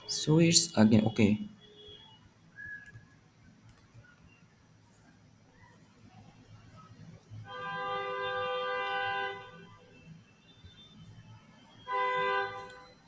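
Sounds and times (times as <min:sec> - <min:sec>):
horn blasts: 0:11.8 - 0:13.0.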